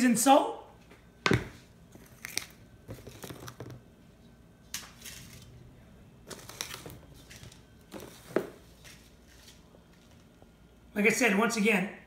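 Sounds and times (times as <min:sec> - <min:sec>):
spice bottles clicking and rustling: 0:02.0 - 0:03.8.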